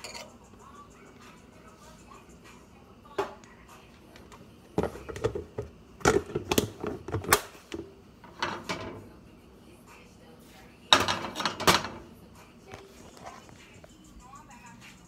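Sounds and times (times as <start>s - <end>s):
utensil clinking against dishes: 0.0s - 0.4s, 10.9s - 12.1s.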